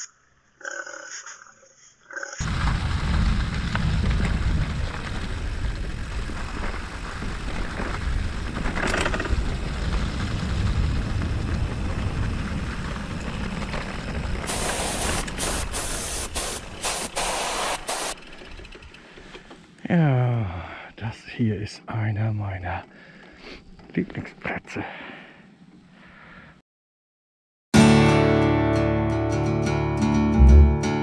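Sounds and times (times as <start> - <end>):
wind rumbling on microphone: 2.4 - 15.8
bike tyres rolling: 2.4 - 19.8
bursts of hiss: 14.5 - 18.2.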